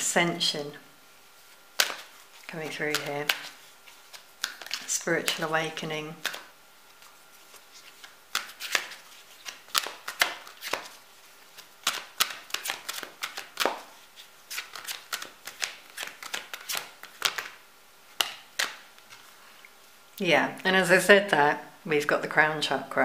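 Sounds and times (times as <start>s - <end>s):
cards being shuffled: 1.5s - 19.4s.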